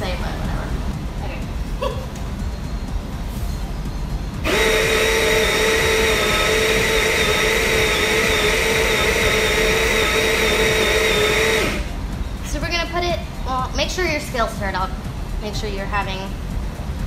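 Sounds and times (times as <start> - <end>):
coffee grinder whining: 4.4 - 12.0.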